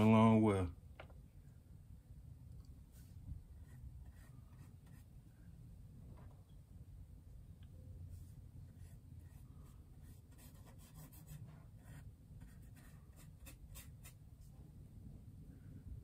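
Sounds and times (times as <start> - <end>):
low room hum: 0.0 - 16.0
paintbrush scratching on canvas: 8.2 - 14.2.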